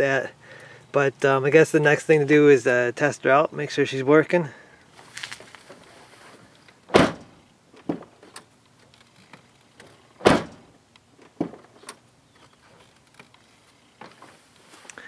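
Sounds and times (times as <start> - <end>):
car door shutting: 6.9 - 8.5, 10.2 - 12.0.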